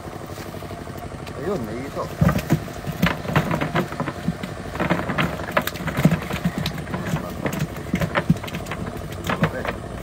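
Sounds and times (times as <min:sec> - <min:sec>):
fish pattering into crate: 0:02.1 - 0:10.0.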